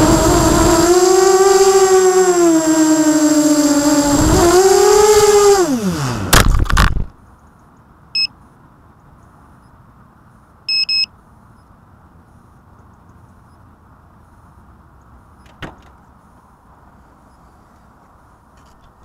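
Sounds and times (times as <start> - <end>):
steady low hiss: 6.7 - 19.0.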